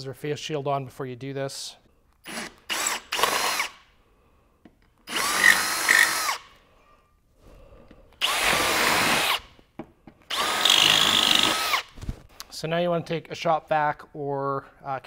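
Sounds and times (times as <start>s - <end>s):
cordless drill drilling metal: 2.2s - 3.8s, 5.1s - 6.5s, 8.2s - 9.5s, 10.3s - 11.9s.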